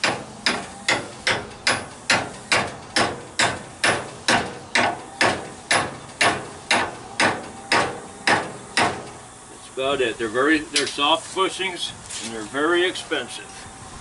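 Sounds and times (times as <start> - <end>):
hammer tapping metal: 0.0 - 9.1.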